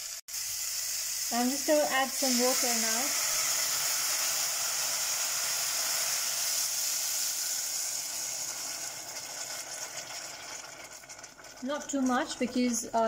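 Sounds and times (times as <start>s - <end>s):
water sizzling in hot oil: 0.0s - 13.0s.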